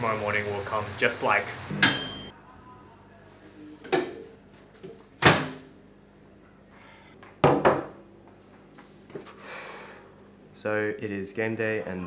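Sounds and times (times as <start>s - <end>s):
kitchen knocks and thuds: 7.4s - 8.0s.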